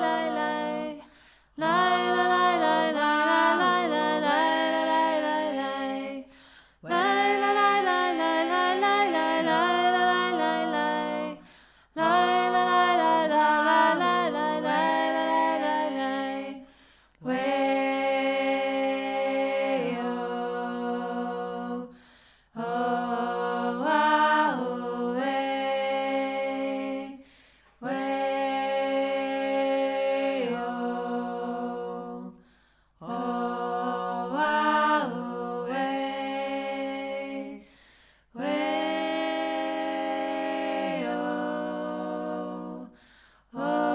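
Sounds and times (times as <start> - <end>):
person singing unaccompanied: 0.0 - 11.4.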